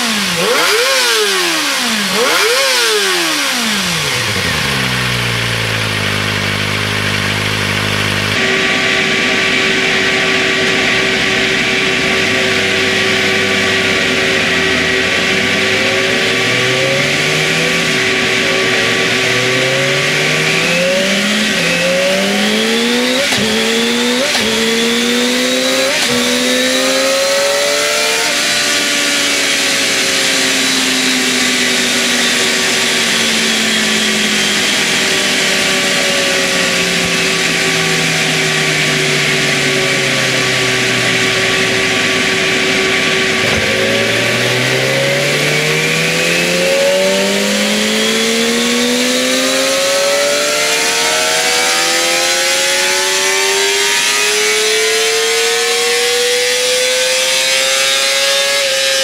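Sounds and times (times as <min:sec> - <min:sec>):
motorcycle engine revving on dyno: 0:00.0 - 0:59.0
steady hum: 0:31.1 - 0:48.5.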